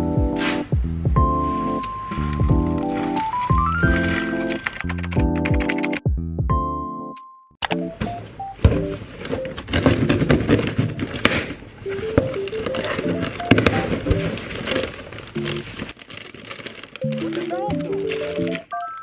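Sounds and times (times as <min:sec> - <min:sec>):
light background music: 0:00.0 - 0:10.4, 0:11.9 - 0:15.9, 0:17.0 - 0:19.0
foil packs crinkling: 0:02.2 - 0:05.0, 0:09.0 - 0:19.0
cardboard box flaps rustling: 0:11.9 - 0:16.3.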